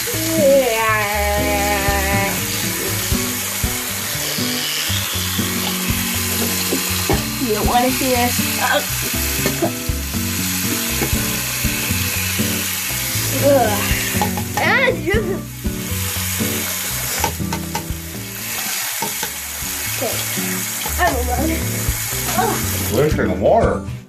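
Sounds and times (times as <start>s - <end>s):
tap water running into sink: 0.0s - 23.2s
teeth brushing: 10.6s - 14.4s.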